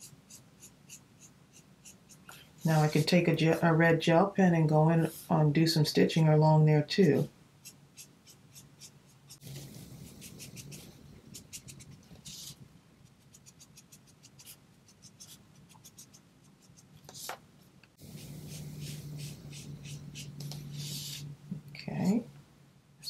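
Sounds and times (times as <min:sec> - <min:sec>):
pen scratching on card: 0:00.0 - 0:03.0, 0:07.6 - 0:17.4, 0:18.0 - 0:21.3.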